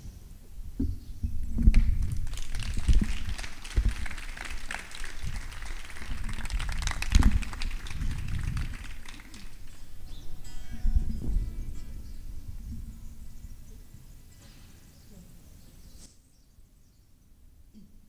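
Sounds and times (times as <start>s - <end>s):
audience applauding: 1.8s - 9.8s.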